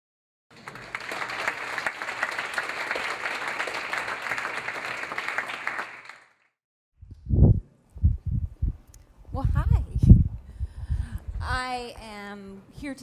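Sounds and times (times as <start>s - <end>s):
audience applauding: 0.5s - 6.6s.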